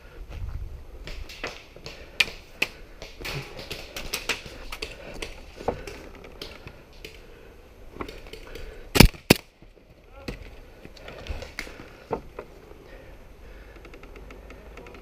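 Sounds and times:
airsoft pistol shots: 9.0s - 9.4s.

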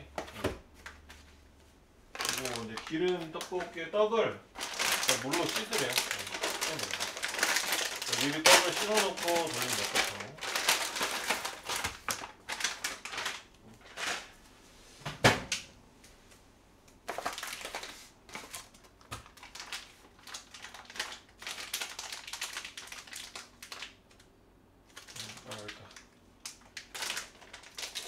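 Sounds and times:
plastic packaging crinkling: 2.1s - 3.8s, 4.5s - 14.3s, 17.0s - 24.3s, 24.9s - 28.0s.

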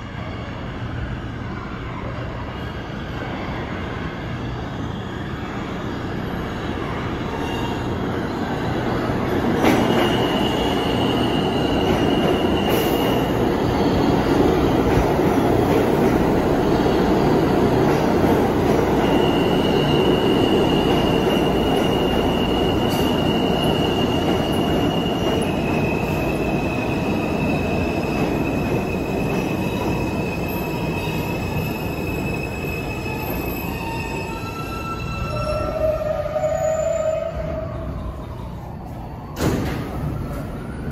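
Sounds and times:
train wheels rumbling on rail: 6.0s - 36.4s.

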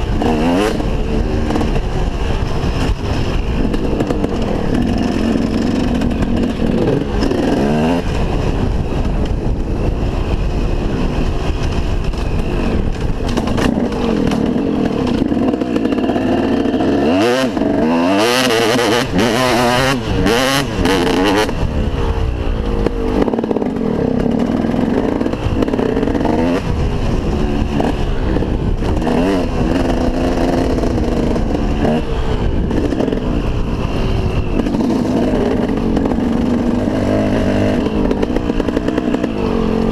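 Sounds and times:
motocross engine revving: 0.0s - 9.0s, 12.4s - 39.9s
wind rumbling on microphone: 0.0s - 39.9s.

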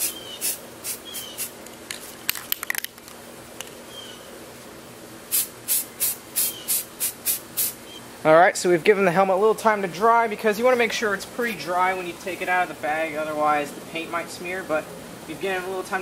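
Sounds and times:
spray can hissing puffs: 0.0s - 2.2s, 5.3s - 7.8s.

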